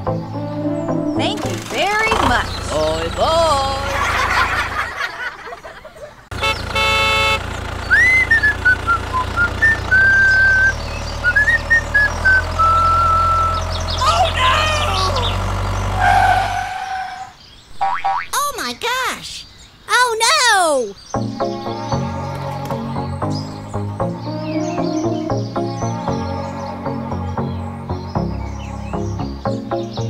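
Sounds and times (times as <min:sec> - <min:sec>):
tractor engine rumble: 0:01.2 - 0:17.0
horn toot: 0:06.3 - 0:07.5
high whistling chirps: 0:07.8 - 0:14.1.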